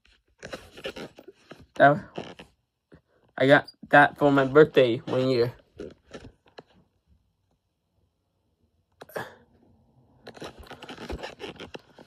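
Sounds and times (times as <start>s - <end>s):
rustling and rubbing: 0.0s - 6.9s, 10.2s - 12.0s.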